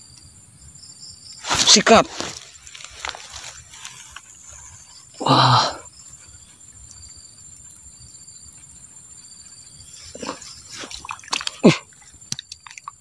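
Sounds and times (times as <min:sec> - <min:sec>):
insect chirring: 0:00.0 - 0:13.0
wet splashes and squelches in mud: 0:01.4 - 0:04.6, 0:10.0 - 0:13.0.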